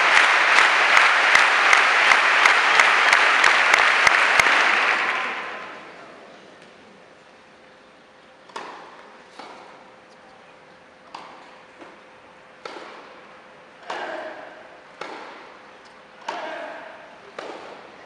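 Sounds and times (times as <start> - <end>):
tennis ball bounce: 8.5 - 9.7, 12.6 - 13.1, 15.0 - 15.5, 17.4 - 17.8
tennis ball hit by racket: 8.5 - 9.7, 12.6 - 13.1, 13.8 - 15.6, 17.3 - 17.9.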